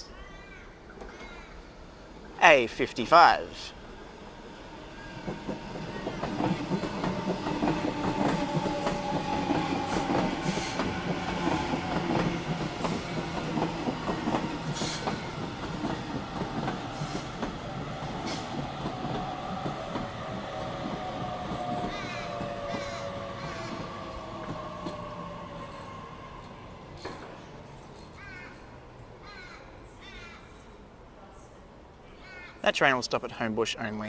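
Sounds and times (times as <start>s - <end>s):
electric train whine: 3.7s - 28.0s
train wheels clicking over rail joints: 5.2s - 27.4s.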